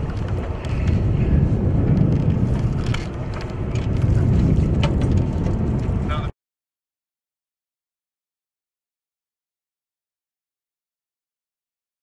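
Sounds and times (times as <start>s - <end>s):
boat rumbling at sea: 0.0s - 6.3s.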